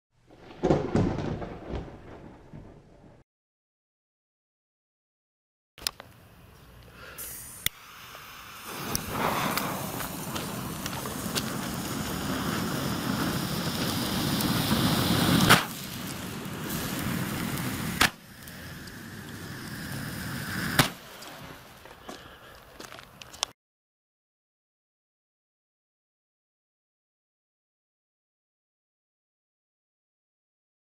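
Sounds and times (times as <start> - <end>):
firework sharp cracks: 0.3 - 2.8, 7.2 - 21.8
firework fountain hissing: 6.9 - 22.4.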